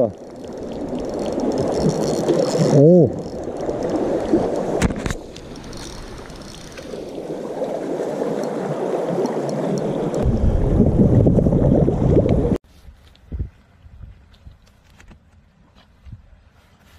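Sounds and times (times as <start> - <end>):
water sloshing among rocks: 0.0 - 10.6.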